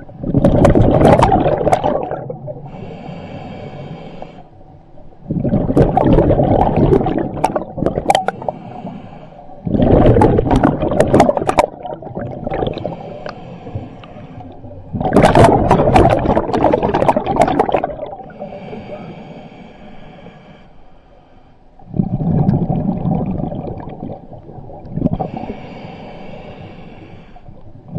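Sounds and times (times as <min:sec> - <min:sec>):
exhaled bubbles bursting: 0:00.0 - 0:02.7, 0:05.2 - 0:08.5, 0:09.6 - 0:13.0, 0:14.6 - 0:18.4, 0:21.8 - 0:25.5
hissing regulator inhalation: 0:02.7 - 0:04.5, 0:08.2 - 0:09.6, 0:12.6 - 0:14.6, 0:18.2 - 0:21.5, 0:25.2 - 0:27.5.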